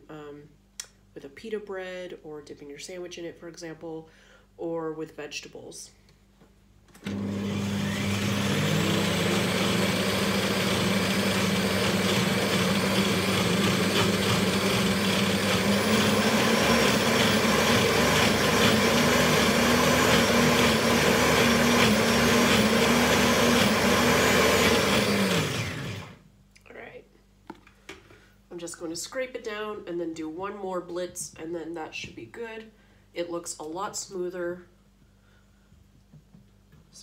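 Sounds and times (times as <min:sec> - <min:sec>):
blender motor running: 0:07.0 - 0:26.2.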